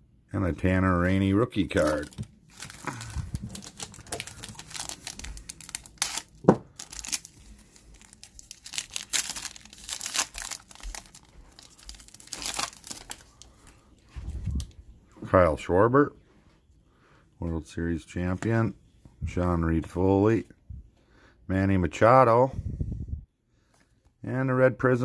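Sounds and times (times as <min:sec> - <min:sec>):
foil wrapper crinkling: 0:01.6 - 0:13.8
foil pack ripping: 0:01.7 - 0:13.4.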